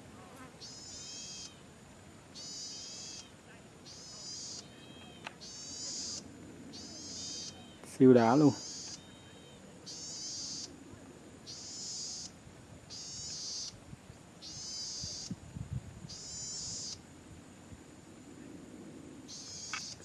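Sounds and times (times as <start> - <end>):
bird singing buzzing phrases: 0.2 - 1.7, 2.4 - 10.7, 11.4 - 13.8, 14.4 - 15.4, 16.0 - 17.0, 19.3 - 20.0.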